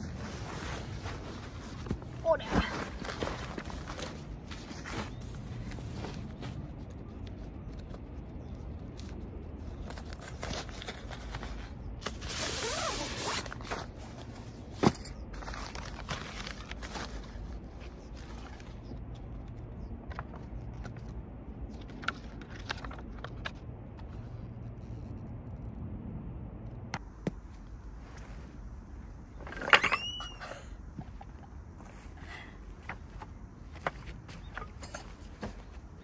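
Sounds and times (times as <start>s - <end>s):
nylon bags rustling and scraping: 0.0s - 6.5s, 10.0s - 18.7s
paper sheet rustling: 15.3s - 18.8s.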